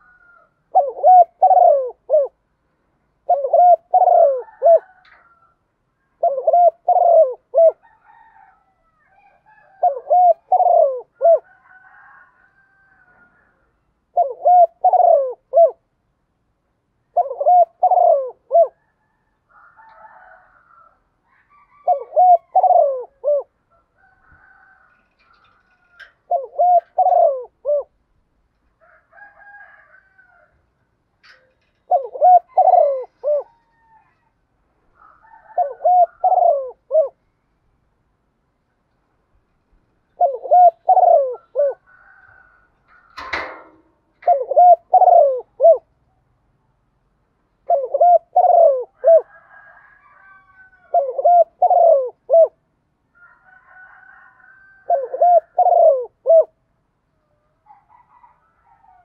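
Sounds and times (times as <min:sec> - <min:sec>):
dove cooing: 0:00.0 - 0:02.4, 0:03.1 - 0:05.5, 0:06.1 - 0:15.9, 0:17.0 - 0:28.0, 0:31.2 - 0:34.3, 0:35.0 - 0:37.2, 0:40.1 - 0:46.0, 0:47.6 - 0:52.6, 0:53.3 - 0:56.6
fainter higher bird calls: 0:31.2 - 0:34.4.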